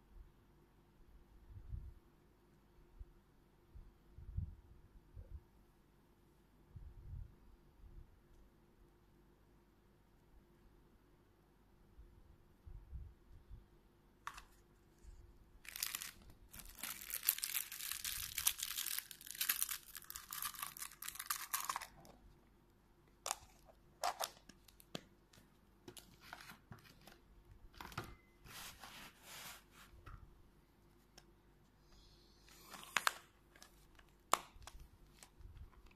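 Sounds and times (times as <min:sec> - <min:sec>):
plastic wrapping tearing and crinkling: 0:15.6 - 0:22.2.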